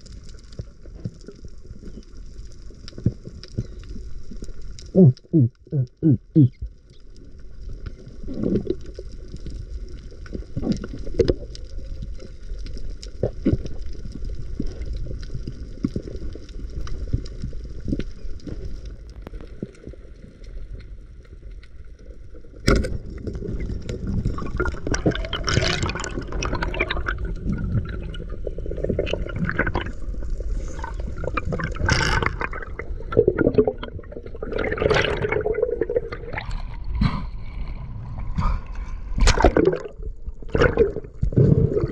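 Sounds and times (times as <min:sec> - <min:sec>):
muffled underwater rumble: 0:00.0 - 0:41.9
water gurgling and sloshing: 0:21.0 - 0:41.9.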